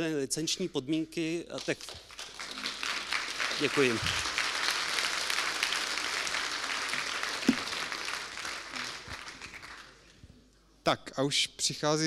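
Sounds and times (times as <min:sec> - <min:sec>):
audience applause: 0:01.9 - 0:10.0.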